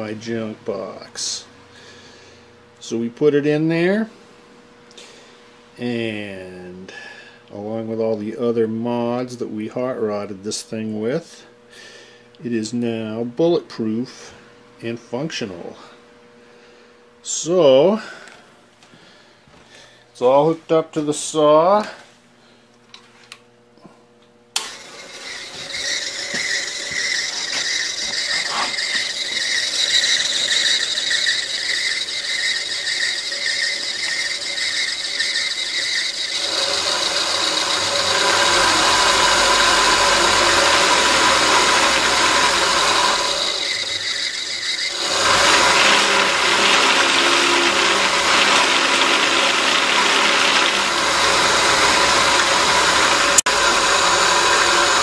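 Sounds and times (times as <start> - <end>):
band saw motor whining: 24.5 - 55.0.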